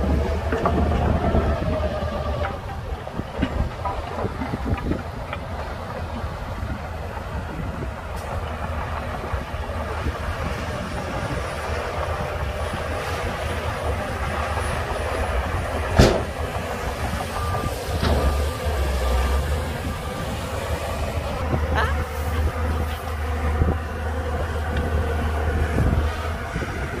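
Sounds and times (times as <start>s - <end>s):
diesel machinery running: 0.0s - 27.0s
dump truck tipping soil: 0.0s - 27.0s.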